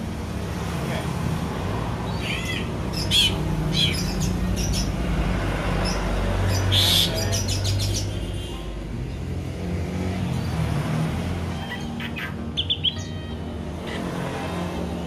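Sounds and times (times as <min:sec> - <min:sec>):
bird whistles and harsh calls: 0:11.6 - 0:13.3.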